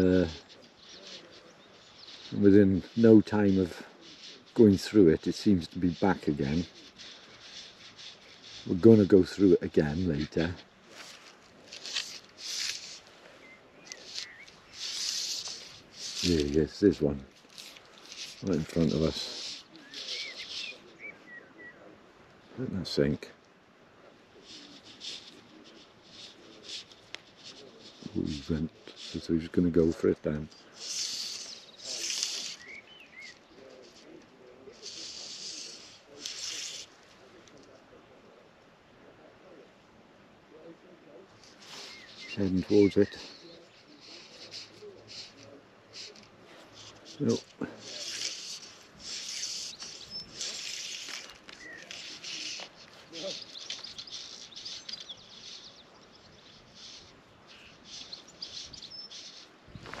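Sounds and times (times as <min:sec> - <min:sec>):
bird chirp: 0:00.0 - 0:23.1, 0:24.4 - 0:36.9, 0:40.5 - 1:00.0
rustling hiss: 0:00.0 - 1:00.0
soft low bird calls: 0:00.0 - 1:00.0
fly line stripped by hand: 0:03.2 - 0:13.1, 0:13.8 - 0:21.0, 0:44.0 - 0:55.0.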